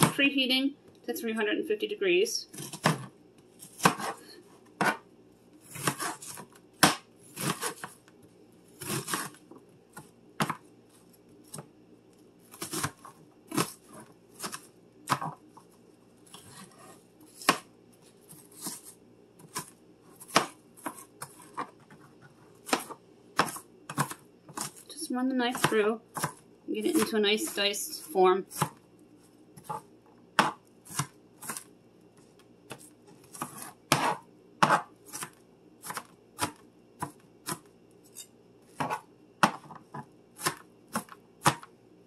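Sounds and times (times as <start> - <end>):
knife chopping on cutting board: 2.5 - 4.2, 4.8 - 5.0, 5.7 - 8.0, 8.8 - 9.4, 10.0 - 10.6, 12.5 - 15.4, 16.3 - 17.7, 18.3 - 22.0, 22.6 - 24.8, 25.5 - 27.1, 28.6 - 28.8, 30.4 - 31.7, 32.7 - 41.7.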